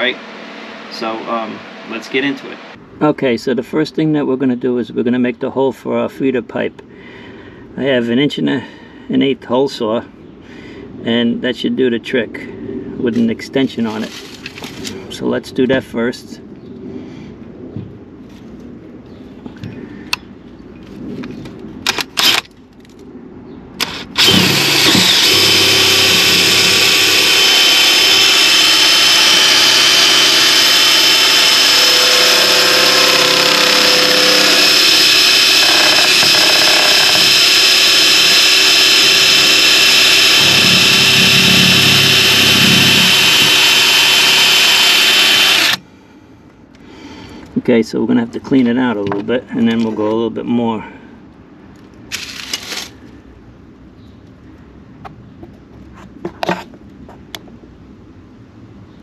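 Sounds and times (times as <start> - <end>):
power drill cutting into wood: 21.9 - 22.4, 23.8 - 45.8.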